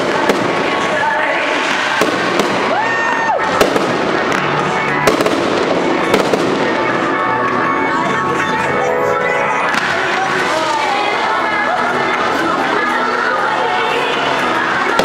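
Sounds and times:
firework whistling: 0.0s - 6.9s
firework crackle: 0.0s - 7.7s, 9.6s - 15.0s.

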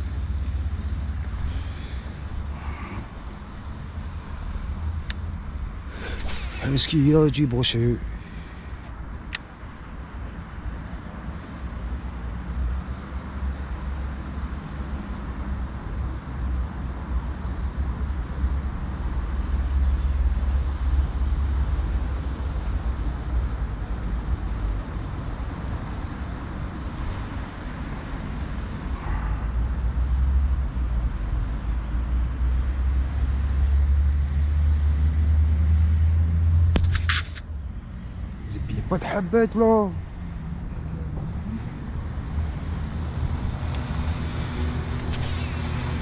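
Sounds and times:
low outdoor rumble: 35.4s - 46.0s.

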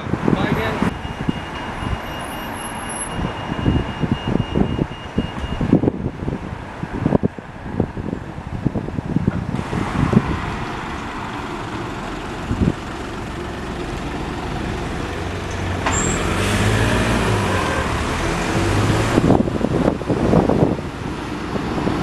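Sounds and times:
diesel bus engine: 0.0s - 22.0s
short high squeal: 15.9s - 16.4s.

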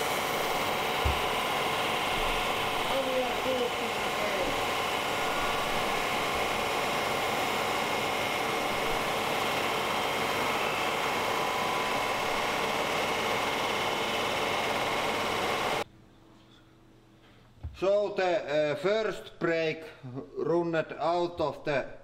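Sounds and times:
lathe running: 0.0s - 15.8s.

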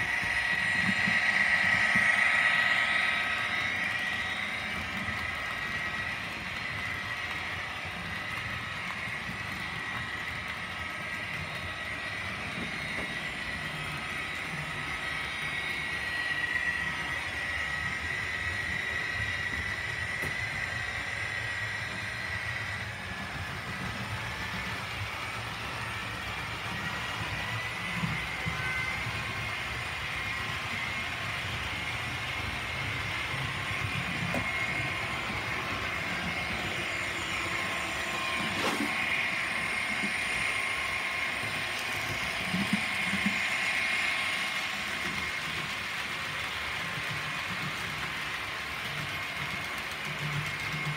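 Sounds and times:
high-pitched whine: 0.0s - 50.9s
model train motor hum: 0.0s - 50.9s
wheels on track: 0.0s - 50.9s.

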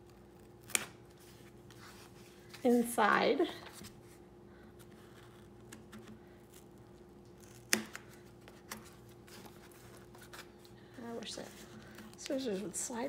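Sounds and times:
faint steady hum: 0.0s - 13.0s
scissors cutting cardboard: 7.4s - 10.4s.

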